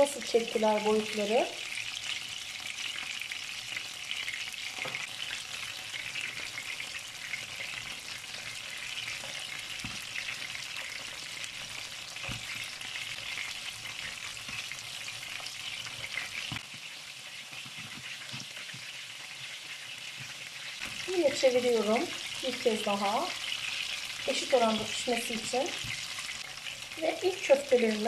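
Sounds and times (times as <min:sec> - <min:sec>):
meat patties sizzling in oil: 0:00.0 - 0:28.0.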